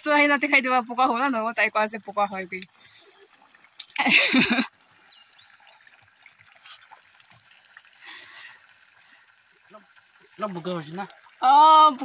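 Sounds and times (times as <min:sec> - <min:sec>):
water trickling from spout: 0:00.0 - 0:12.0
water splashing on face: 0:02.0 - 0:08.6.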